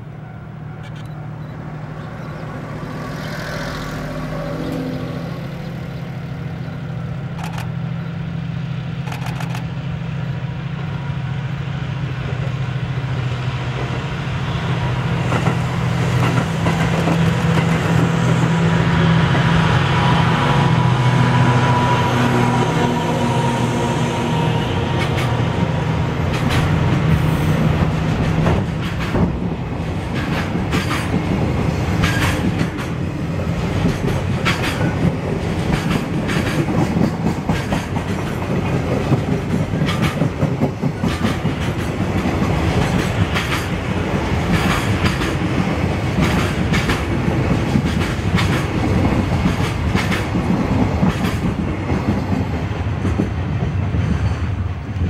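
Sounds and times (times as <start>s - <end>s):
steel wheels rumbling on rail: 0.0s - 55.0s
wheels clickety-clack over joints: 15.3s - 18.1s, 26.2s - 55.0s.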